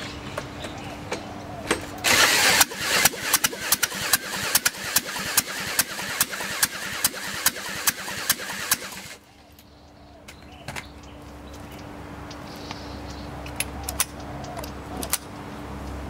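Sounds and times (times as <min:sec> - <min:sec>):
power drill cranking engine: 0:02.0 - 0:09.2.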